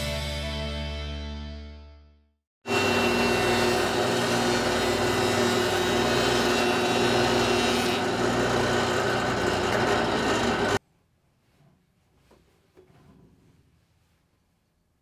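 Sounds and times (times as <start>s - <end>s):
jointer motor hum: 2.7s - 10.8s.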